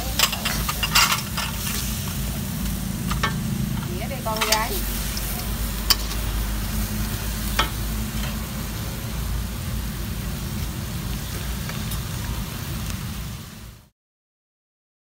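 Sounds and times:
metal spatula clinking on wok: 0:00.0 - 0:01.8, 0:04.3 - 0:06.3
food sizzling in a wok: 0:00.0 - 0:13.9.

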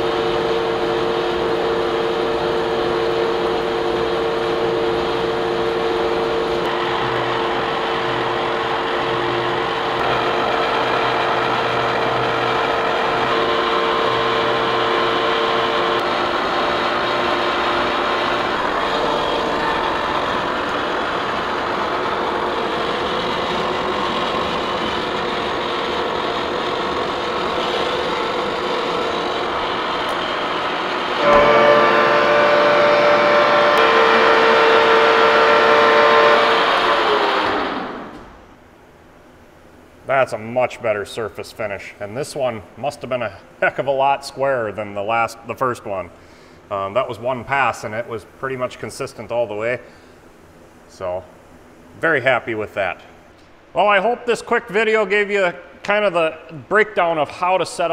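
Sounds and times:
milling machine cutting metal: 0:00.0 - 0:38.2.

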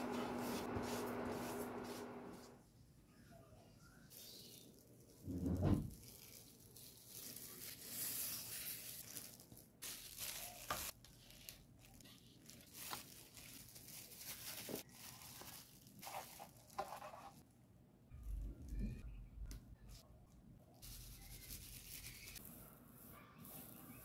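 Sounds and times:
plastic glove crinkling: 0:00.0 - 0:02.6, 0:04.1 - 0:17.5, 0:20.8 - 0:22.5.

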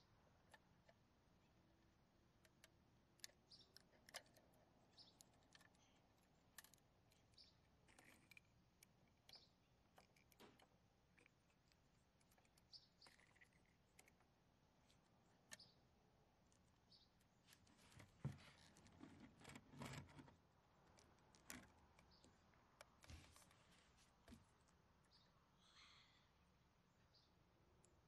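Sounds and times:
toy clicks and taps on wood: 0:02.4 - 0:14.3.

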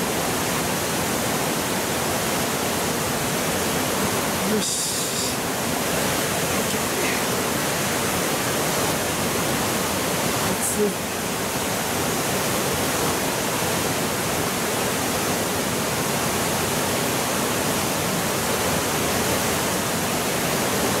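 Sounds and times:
rocky stream: 0:00.0 - 0:21.0
waterfall rushing: 0:00.0 - 0:21.0.

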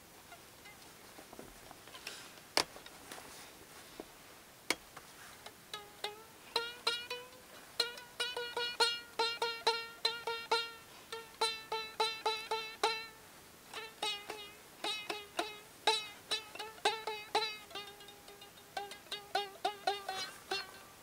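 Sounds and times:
string and cup noisemaker notes: 0:05.7 - 0:21.0.

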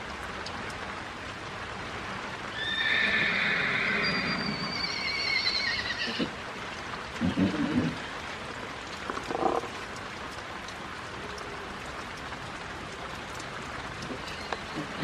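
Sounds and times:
rain hissing: 0:00.0 - 0:15.0
horse whinnying: 0:02.6 - 0:06.4.

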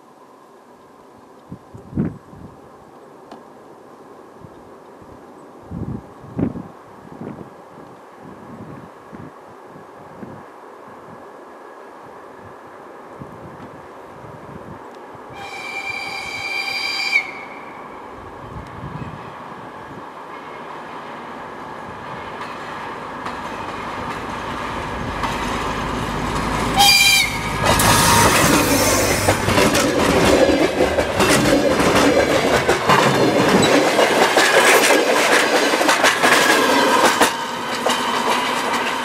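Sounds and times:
train engine: 0:15.3 - 0:39.0
train horn blast: 0:15.4 - 0:17.8, 0:26.7 - 0:29.3
wheels clattering on rails: 0:22.3 - 0:39.0.

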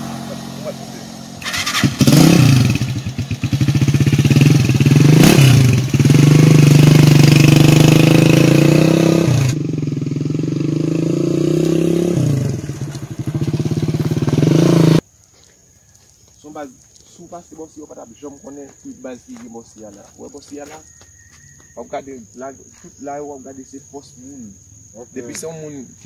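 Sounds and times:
small motorcycle engine revving: 0:00.0 - 0:15.0.

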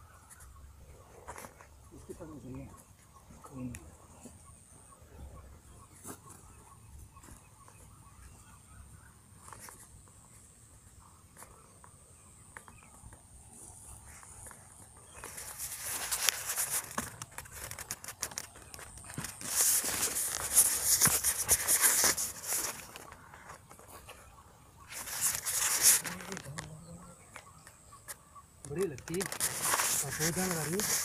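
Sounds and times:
footsteps crunching dry grass: 0:12.7 - 0:28.1, 0:28.7 - 0:31.0.

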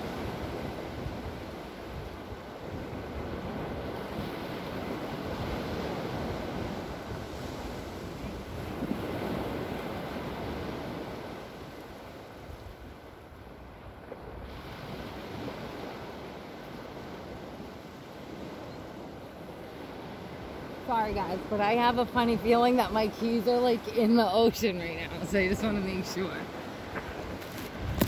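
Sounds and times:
ocean surf breaking: 0:00.0 - 0:28.0
wind buffeting microphone: 0:00.0 - 0:28.0.

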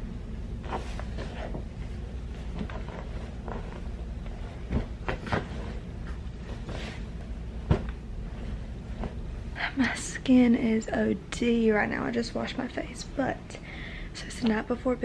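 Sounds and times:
steady low hum: 0:00.0 - 0:15.0
rustling: 0:00.6 - 0:09.4.

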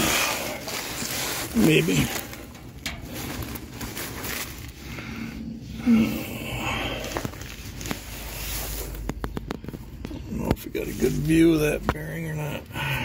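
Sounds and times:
shuffling and handling noise: 0:00.0 - 0:05.7, 0:06.6 - 0:12.7
person grunting: 0:05.7 - 0:07.2.

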